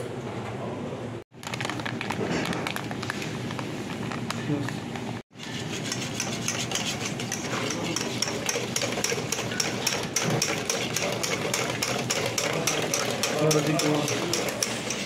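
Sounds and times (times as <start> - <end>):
whisk clacking in metal bowl: 5.4 - 15.0.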